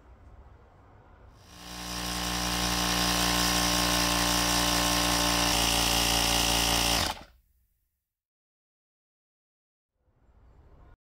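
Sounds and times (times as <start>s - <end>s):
tire inflator compressor running: 1.4s - 7.3s.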